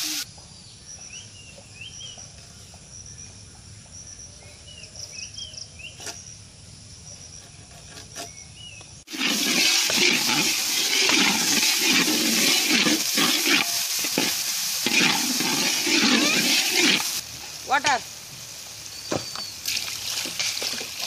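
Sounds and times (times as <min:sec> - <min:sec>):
small birds chirping: 0:00.3 - 0:09.0, 0:17.7 - 0:20.1
ladle scraping a wok: 0:07.4 - 0:08.4, 0:09.1 - 0:17.2
vegetables sizzling in oil: 0:09.0 - 0:21.0.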